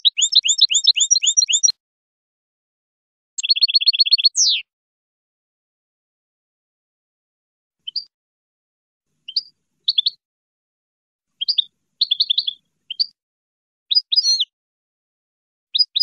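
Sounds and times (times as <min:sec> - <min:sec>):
bird singing: 0:00.0 - 0:01.8, 0:03.4 - 0:04.7, 0:07.8 - 0:08.1, 0:09.2 - 0:10.2, 0:11.4 - 0:13.2, 0:13.9 - 0:14.5, 0:15.7 - 0:16.0.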